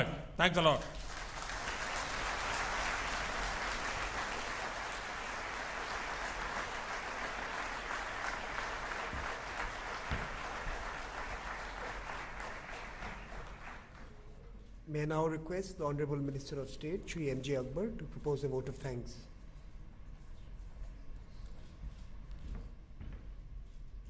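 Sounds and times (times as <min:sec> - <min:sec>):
audience applauding: 0:00.9 - 0:14.1.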